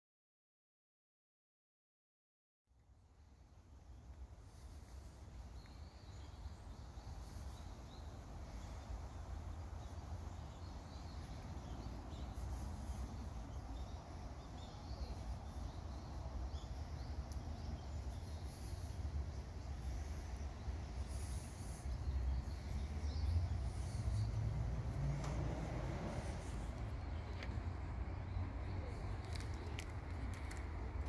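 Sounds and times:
small bird chirps: 4.5s - 25.0s.

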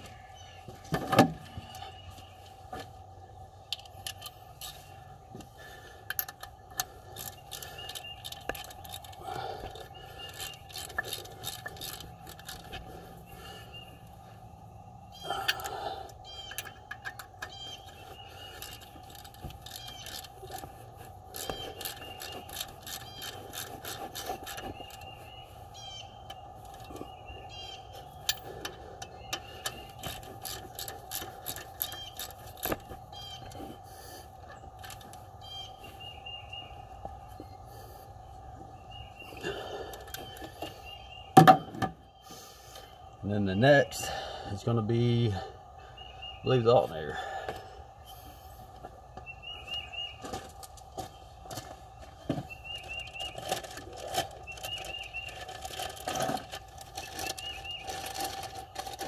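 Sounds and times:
socket ratchet clicking: 10.2s - 12.7s.

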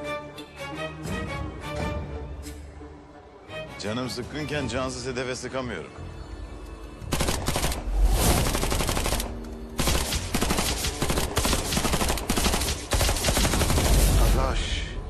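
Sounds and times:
automatic gunfire bursts: 7.1s - 14.0s.

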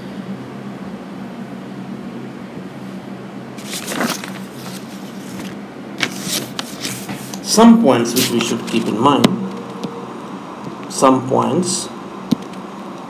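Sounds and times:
steady low hum: 0.0s - 13.0s
soft rustles: 3.6s - 7.5s.

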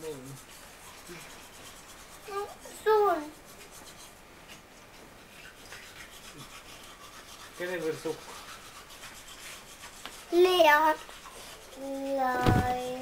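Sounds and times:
bedclothes rustling: 12.2s - 13.0s.

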